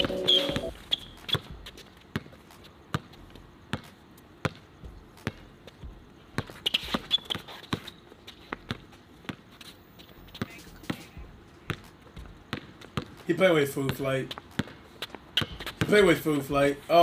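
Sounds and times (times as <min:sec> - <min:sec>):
basketball bouncing on hard court: 0:00.0 - 0:09.5, 0:10.4 - 0:16.2
short high squeaks: 0:06.6 - 0:08.0.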